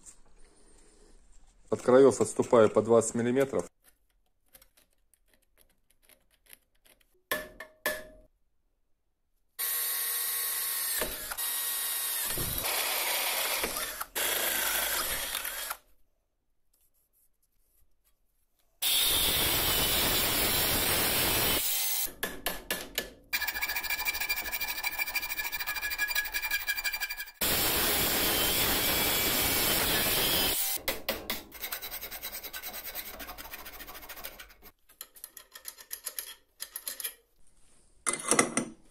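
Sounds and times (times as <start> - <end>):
angle grinder cutting steel: 18.8 - 22.1, 23.4 - 30.8.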